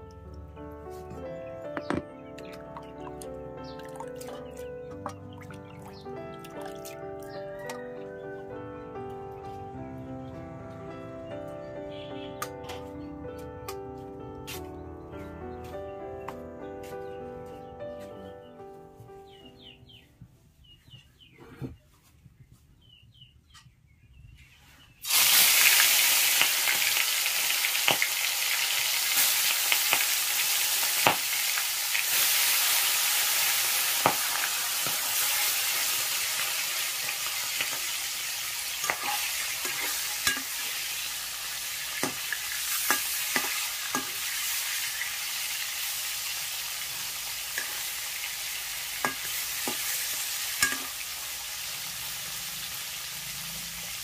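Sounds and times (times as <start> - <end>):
oil popping and crackling: 1.7 - 7.8, 25.0 - 54.0
fish frying in oil: 25.0 - 54.0.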